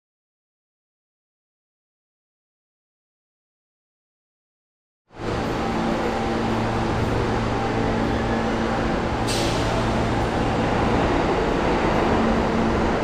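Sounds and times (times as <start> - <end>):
subway train rumble: 5.1 - 13.0.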